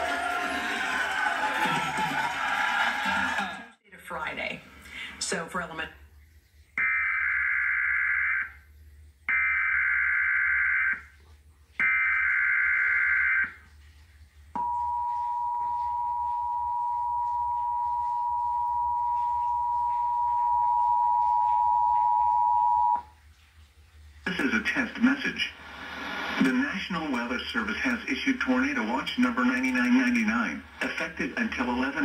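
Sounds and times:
two-tone attention signal: 0:14.6 - 0:23.1.

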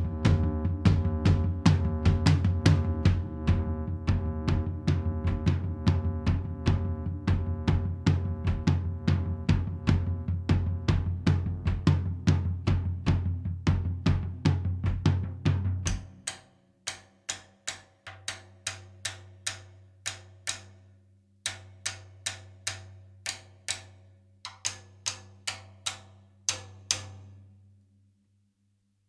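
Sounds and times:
drum kit playing: 0:00.0 - 0:16.3.

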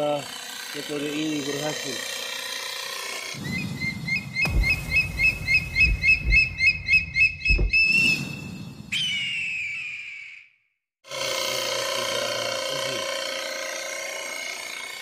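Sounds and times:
rapid bird chirps: 0:03.4 - 0:10.5
low booms: 0:04.4 - 0:08.9.

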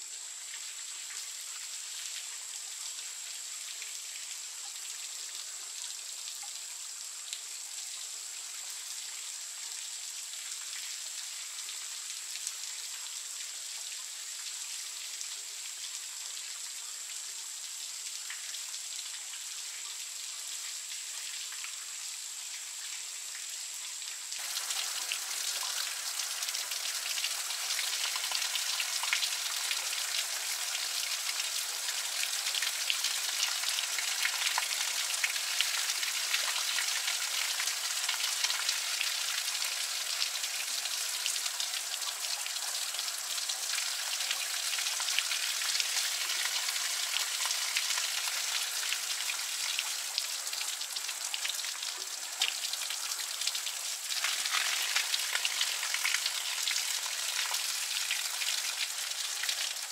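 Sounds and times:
shower water splashing: 0:24.4 - 0:50.0, 0:53.6 - 0:59.9.

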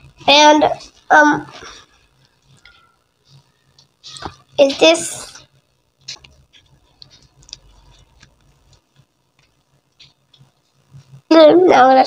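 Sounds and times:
small ticks and rustles of paper: 0:05.5 - 0:11.3.

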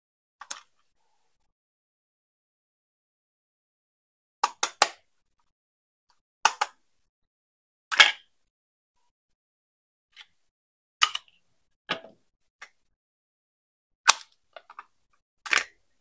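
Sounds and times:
plastic toy clicks and taps: 0:04.4 - 0:05.0, 0:06.5 - 0:06.8, 0:14.1 - 0:14.9, 0:15.5 - 0:15.8.

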